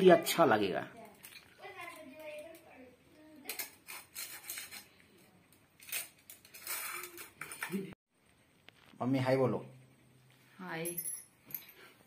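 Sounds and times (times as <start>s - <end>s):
dishes and cutlery clinking: 5.9s - 8.0s.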